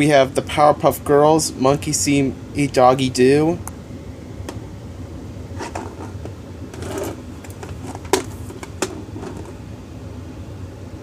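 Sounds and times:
plastic case clicks and knocks: 5.7s - 9.5s.

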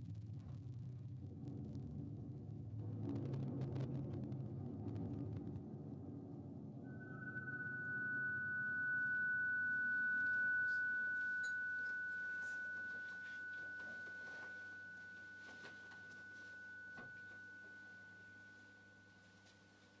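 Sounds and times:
lower electronic tone: 6.8s - 19.4s
high pure tone: 6.9s - 19.6s.

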